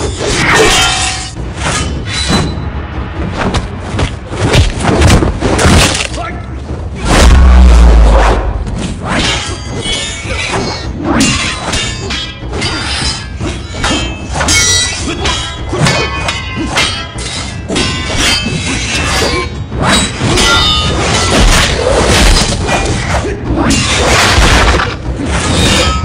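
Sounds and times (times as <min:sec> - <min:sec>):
sword blades clashing: 0:00.0 - 0:02.6, 0:09.1 - 0:26.0
film music score: 0:00.0 - 0:26.0.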